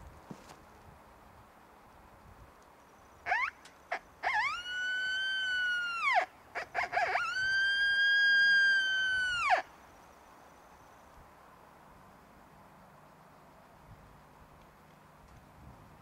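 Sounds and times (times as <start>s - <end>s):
coyote howler call: 3.2s - 9.7s.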